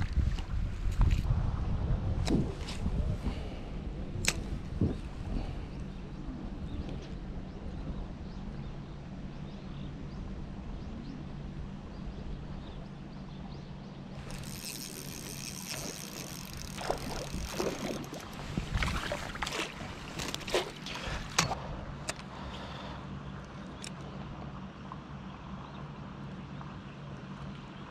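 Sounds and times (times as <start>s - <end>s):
water noise: 14.0s - 27.9s.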